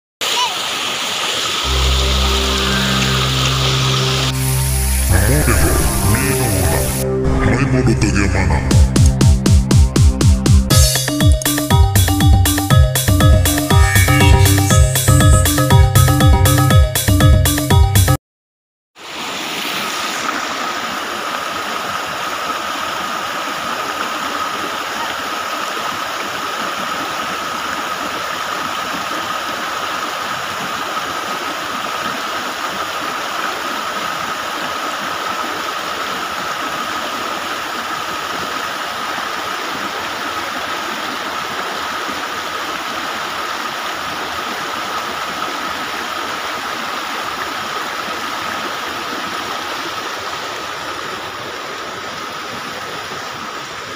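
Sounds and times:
creek water rushing over weir: 0:00.2 - 0:07.1, 0:19.0 - 0:53.9
thin high tone: 0:01.6 - 0:07.1, 0:13.4 - 0:16.6.

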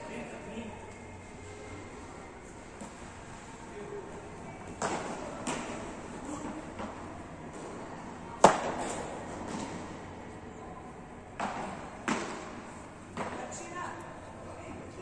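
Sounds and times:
paddle striking ball: 0:11.4 - 0:13.5.

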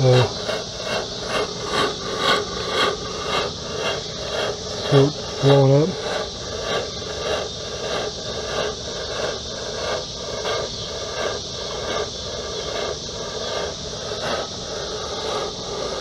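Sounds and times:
smoke machine pulsing hiss: 0:00.0 - 0:16.0.

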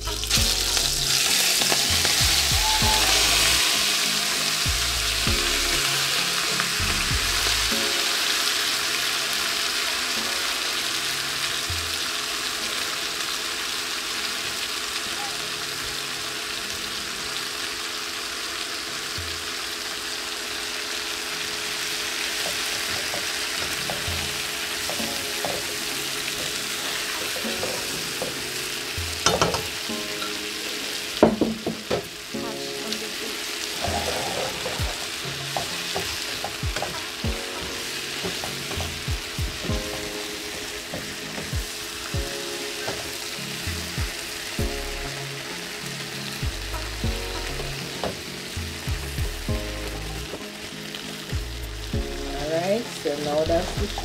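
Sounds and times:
shrimp sizzling in frying pan: 0:00.0 - 0:54.0.

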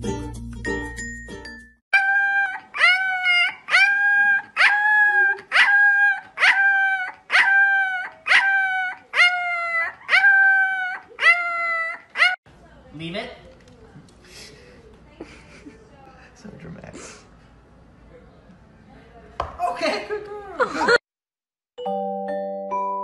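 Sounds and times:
puppy howling: 0:02.0 - 0:12.4.

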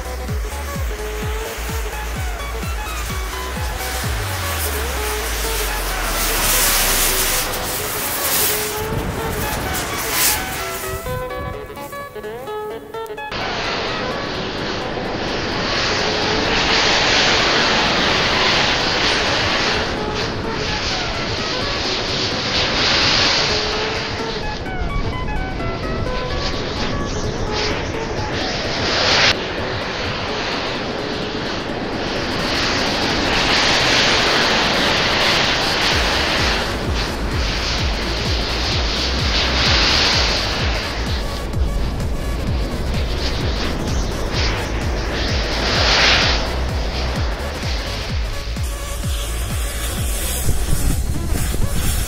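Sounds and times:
flames rushing: 0:00.0 - 0:12.7, 0:13.3 - 0:52.0
low beats: 0:00.0 - 0:52.0
roar of burning matches: 0:02.4 - 0:08.8.

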